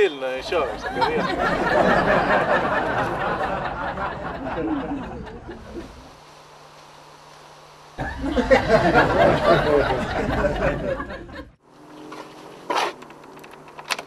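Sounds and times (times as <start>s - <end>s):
people laughing: 0.4s - 6.1s, 8.0s - 11.6s
low hum: 0.4s - 14.0s.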